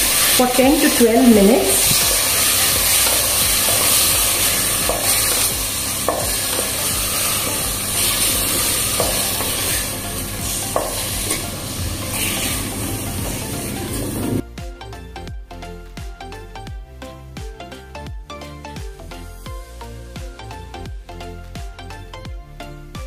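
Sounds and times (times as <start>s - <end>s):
chicken sizzling in oil: 0.0s - 14.4s
wooden spatula scraping and knocking: 0.1s - 14.0s.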